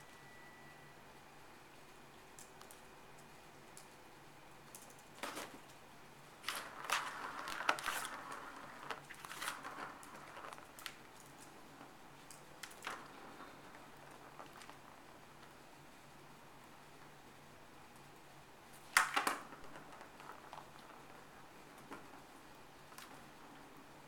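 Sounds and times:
ball rattling and rolling in track: 4.8 - 5.7, 6.4 - 15.6, 18.8 - 24.0.

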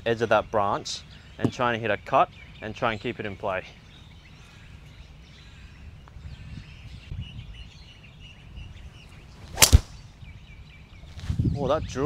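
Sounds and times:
golf club swish: 9.3 - 10.1
club cracking against ball: 9.5 - 10.0.

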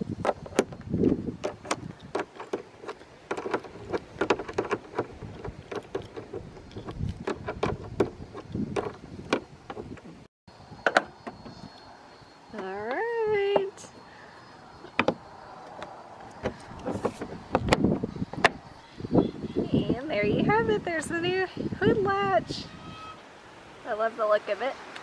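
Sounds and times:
low handling bumps: 0.0 - 11.6, 14.8 - 18.7.

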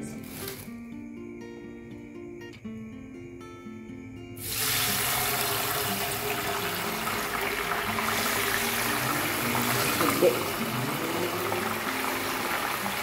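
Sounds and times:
oil sizzling: 0.2 - 0.7, 4.4 - 13.0.

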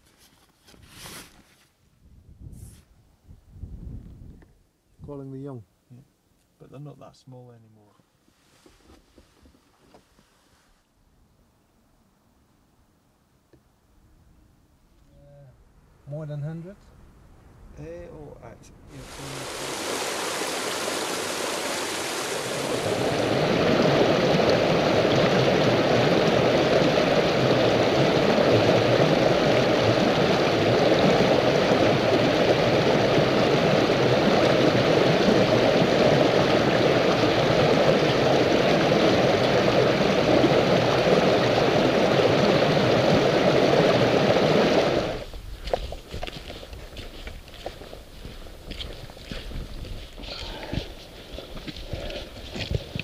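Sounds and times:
stream rushing over stones: 18.9 - 46.4, 50.2 - 53.0
faint footsteps: 45.2 - 53.0.

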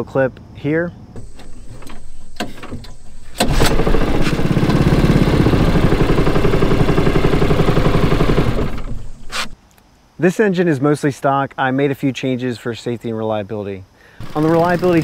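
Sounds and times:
small engine pull-started and running: 1.2 - 9.6, 14.2 - 15.0.

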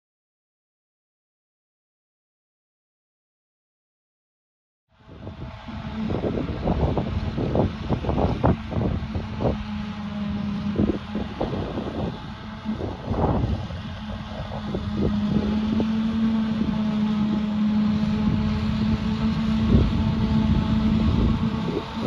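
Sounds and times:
diesel engine running: 4.9 - 22.0
wind buffeting microphone: 5.0 - 22.0.

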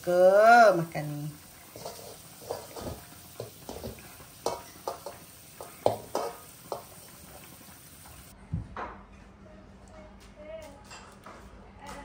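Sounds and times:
metal spoon scraping in pot: 1.4 - 7.5.

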